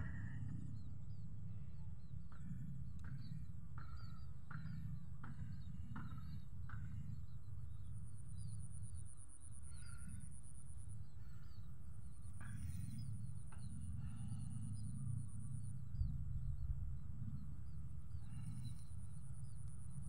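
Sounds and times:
low rumble: 9.7 - 20.0.

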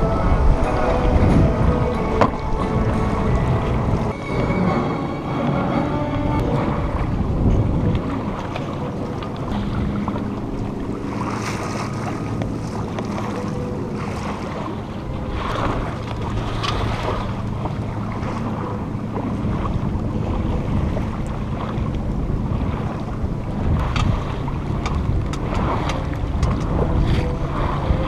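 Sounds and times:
water washing along hull: 0.0 - 28.0
wind buffeting microphone: 0.0 - 28.0.

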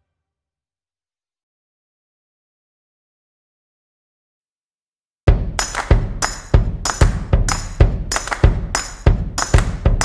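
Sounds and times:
upbeat drum beat music: 5.3 - 10.0.

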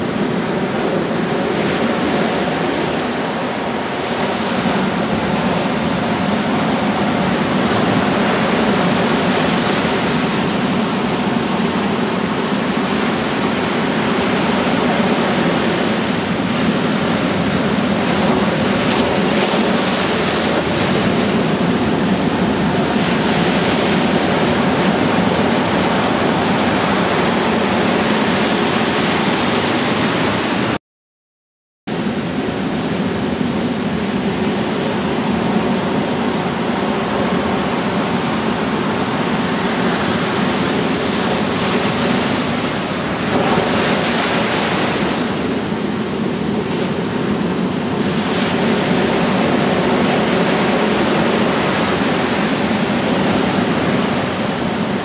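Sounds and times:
ocean surf breaking: 0.0 - 30.8, 31.9 - 55.0.

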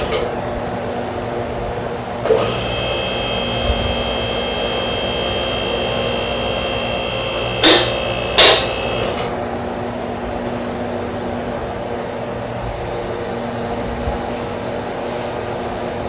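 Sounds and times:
hydraulic lift motor humming: 0.0 - 0.6, 2.2 - 9.6.

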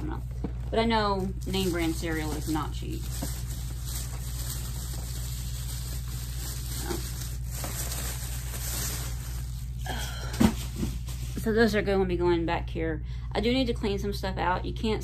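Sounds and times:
plastic bag rustling: 0.0 - 11.8
low background hum: 0.0 - 15.0.

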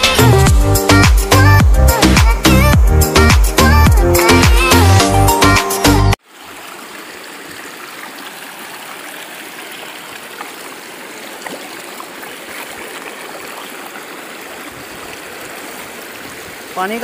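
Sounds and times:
stream rushing over stones: 6.2 - 17.0.

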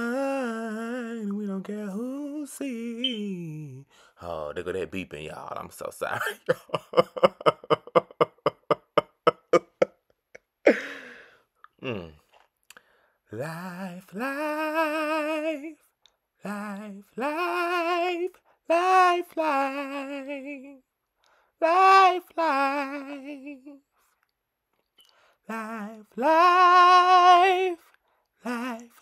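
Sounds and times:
woman singing unaccompanied: 0.0 - 3.5, 16.4 - 20.8, 21.6 - 23.8, 25.5 - 27.8, 28.4 - 29.0.

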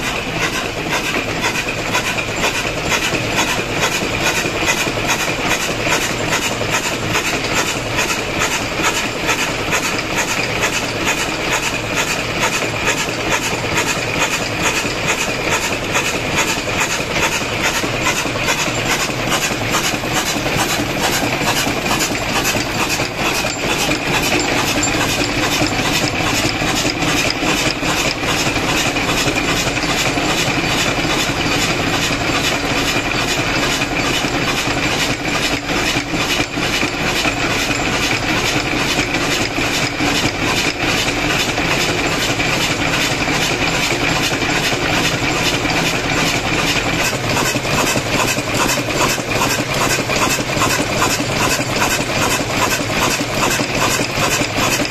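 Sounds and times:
diesel engine running: 11.1 - 32.0, 40.6 - 54.9.

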